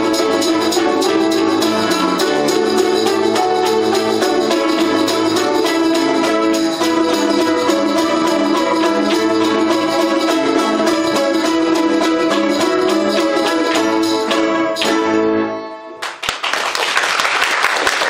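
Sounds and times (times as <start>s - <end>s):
balalaika ensemble tremolo strumming: 0.0s - 16.0s
audience applause: 16.0s - 18.0s.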